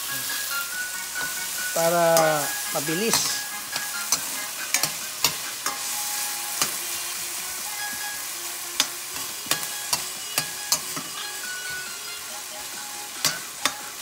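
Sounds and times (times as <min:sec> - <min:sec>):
vegetables sizzling in a pan: 0:00.0 - 0:14.0
metal spoon clinking against pan: 0:02.2 - 0:05.9, 0:08.8 - 0:11.8.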